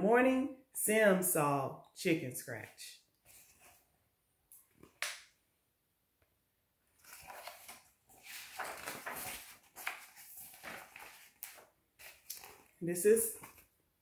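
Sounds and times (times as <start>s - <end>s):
paper pages rustling: 3.3s - 3.8s, 7.0s - 13.8s.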